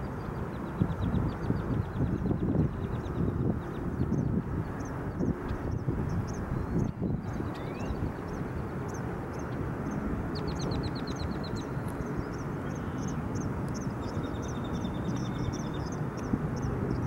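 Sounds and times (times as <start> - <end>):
steady low rumble: 0.0 - 17.0
small birds calling: 0.6 - 17.0.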